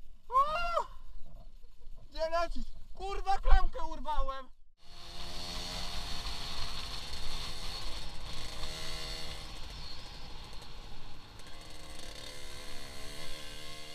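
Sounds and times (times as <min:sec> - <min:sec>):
motorcycle engine running: 0:04.8 - 0:13.9.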